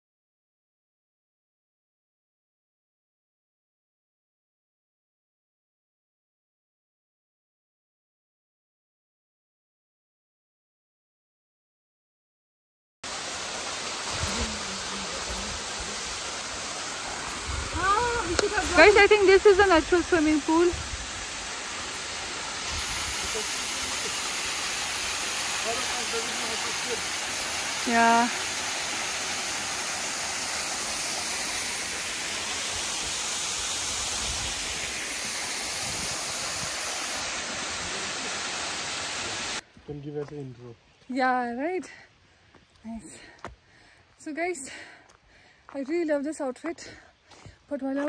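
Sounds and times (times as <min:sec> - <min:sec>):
small waterfall rushing: 0:13.0 - 0:39.6.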